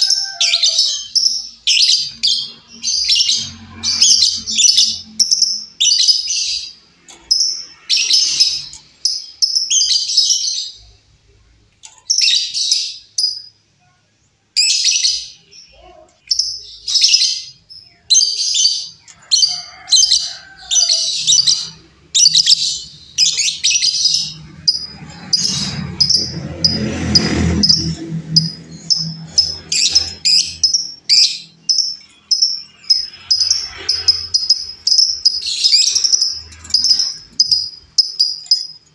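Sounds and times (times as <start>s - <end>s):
bird chirping: 0.0s - 14.0s, 14.6s - 38.9s.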